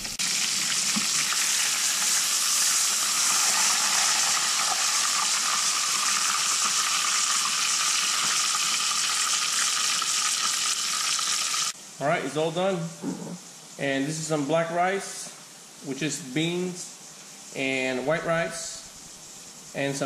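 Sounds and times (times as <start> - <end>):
fish deep-frying in oil: 0.0 - 11.8.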